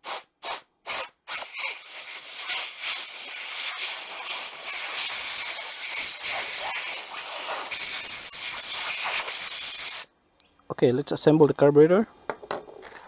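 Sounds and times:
compressed air hissing: 0.0s - 10.1s.

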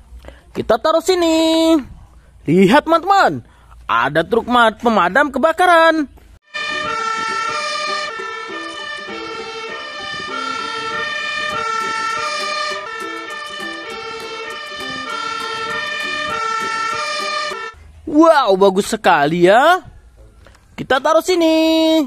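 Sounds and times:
two-tone fire engine siren: 6.5s - 17.8s.

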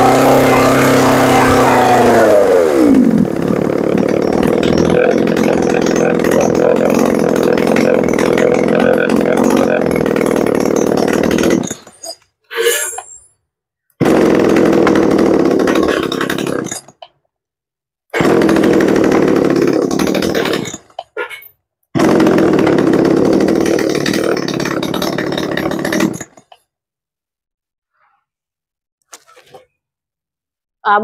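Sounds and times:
chainsaw revving: 0.0s - 11.8s, 14.0s - 16.7s, 18.2s - 20.7s, 22.0s - 26.3s.

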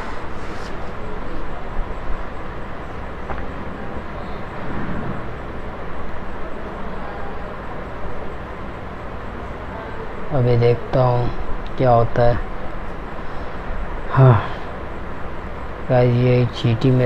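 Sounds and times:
low rumble: 3.5s - 6.2s.

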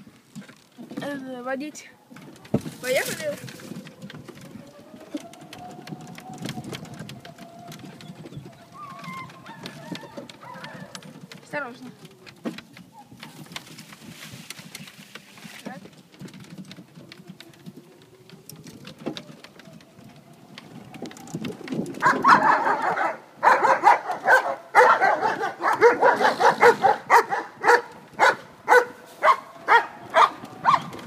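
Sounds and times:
golf cart whine: 2.3s - 11.4s, 16.1s - 31.0s
dog barking: 22.0s - 30.9s.

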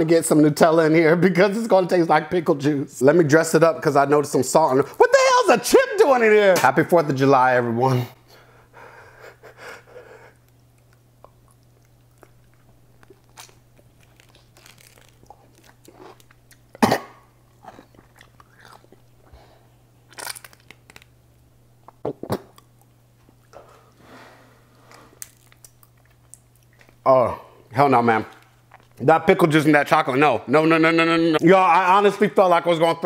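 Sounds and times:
man chewing crunchy food: 10.2s - 19.4s, 24.7s - 27.0s, 28.3s - 29.0s.

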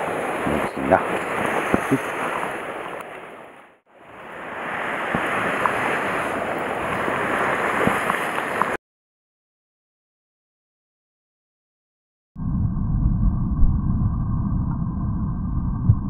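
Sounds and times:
surf washing against rocks: 0.0s - 8.8s.

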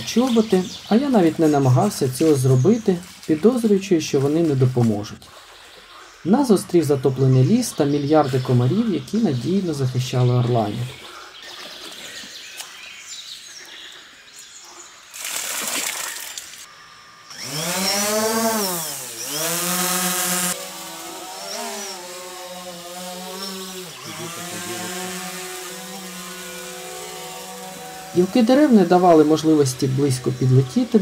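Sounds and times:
drone motors buzzing whine: 16.7s - 31.0s.

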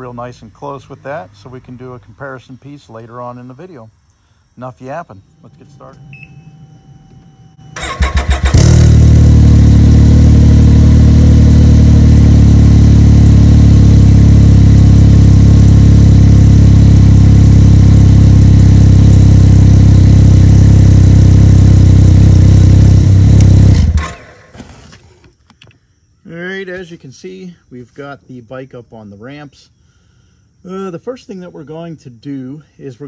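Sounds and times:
engine starter cranking: 7.7s - 9.2s, 23.4s - 24.6s
engine idling loudly: 7.9s - 24.2s.

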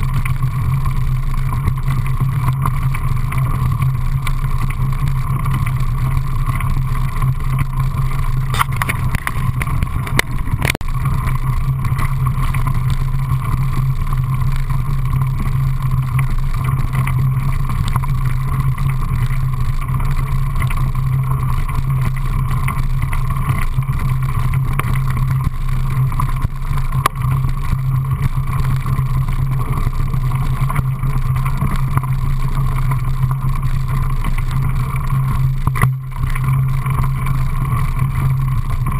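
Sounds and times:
wind on microphone: 6.6s - 17.0s.

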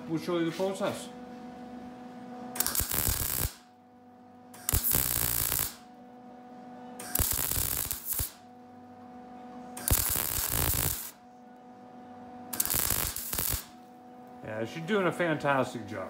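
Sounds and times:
mig welder tack welding: 2.6s - 3.7s, 4.5s - 5.8s, 7.0s - 8.4s, 9.8s - 11.2s, 12.5s - 13.8s.

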